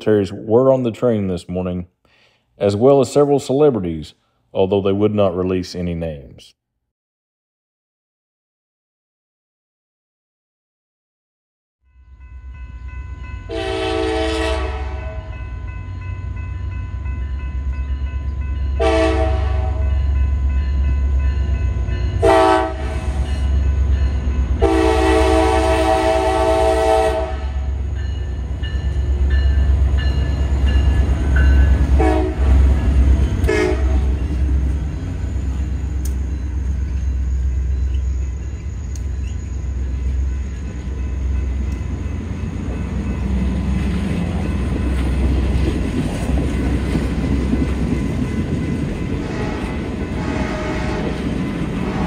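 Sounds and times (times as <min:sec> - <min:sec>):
train rumbling: 0:11.9 - 0:52.0
train horn blasts: 0:13.5 - 0:15.4, 0:18.8 - 0:20.0, 0:22.2 - 0:23.4, 0:24.6 - 0:27.8, 0:32.0 - 0:32.6, 0:33.4 - 0:34.3, 0:49.2 - 0:51.2.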